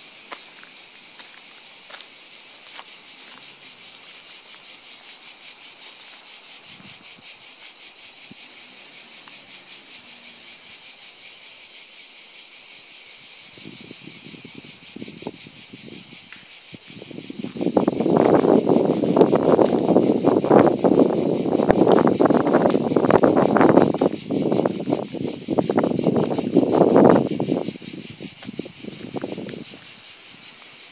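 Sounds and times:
cicadas singing: 0.0 - 30.9
low scuffing noises: 0.2 - 3.6, 28.3 - 30.9.

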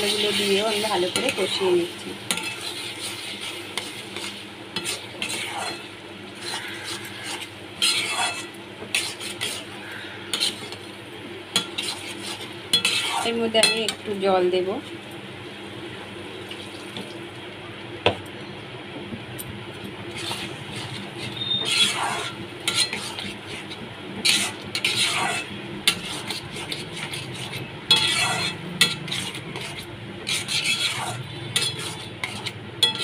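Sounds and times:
spatula scraping metal pan: 0.0 - 10.9, 11.5 - 14.0, 20.1 - 33.0
faint sizzling: 0.0 - 17.6
steady low hum: 0.0 - 33.0
spatula knocking pan: 12.7 - 14.0.

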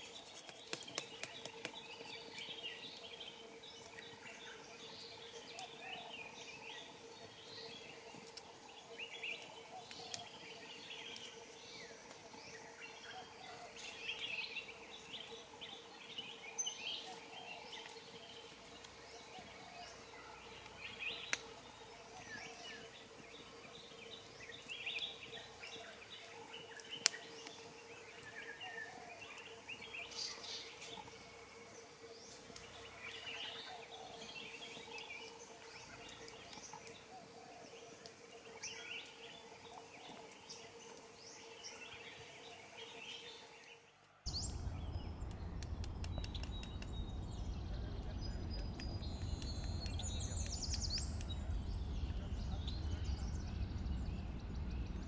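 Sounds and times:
wild birds chirping and calling: 0.7 - 55.0
steady hum: 44.3 - 55.0
sharp clicks: 44.4 - 54.8.

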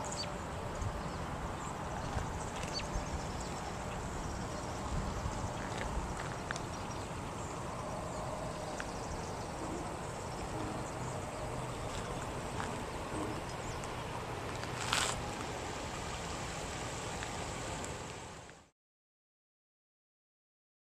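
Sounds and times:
faint low hum: 0.0 - 18.6
wind rumble on microphone: 0.6 - 15.6.

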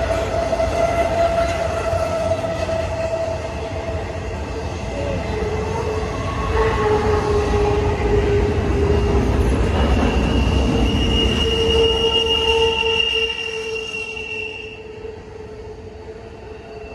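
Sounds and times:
train wheels rumbling on track: 0.0 - 16.9
high-pitched squeal: 4.9 - 14.9
wheel squeal: 9.0 - 14.8.

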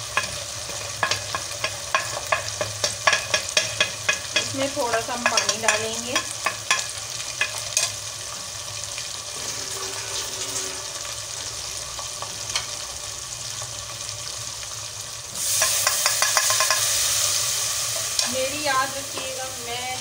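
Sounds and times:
spices sizzling in hot oil: 0.0 - 20.0
spoon scraping and tapping pot: 0.2 - 8.0, 15.6 - 16.8.

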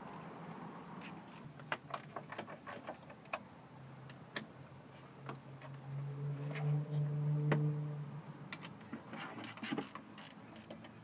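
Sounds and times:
wrench clicking on bolts: 9.4 - 11.0.

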